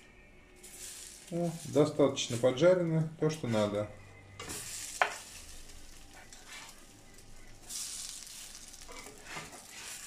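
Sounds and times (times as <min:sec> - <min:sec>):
fritters sizzling in a pan: 0:00.6 - 0:02.6, 0:04.4 - 0:10.0
spatula scraping a pan: 0:06.1 - 0:06.9, 0:07.7 - 0:10.0.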